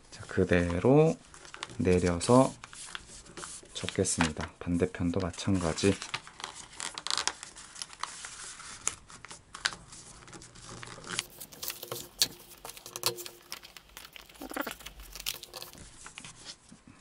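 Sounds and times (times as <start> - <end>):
paper rustling and crinkling: 0.2 - 16.8
sharp taps creasing paper: 9.6 - 16.5.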